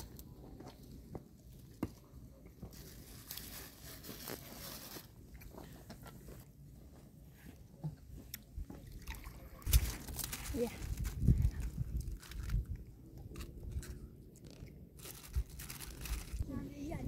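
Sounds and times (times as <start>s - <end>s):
plastic bag rustling: 2.7s - 5.2s, 9.7s - 12.7s, 14.4s - 16.9s.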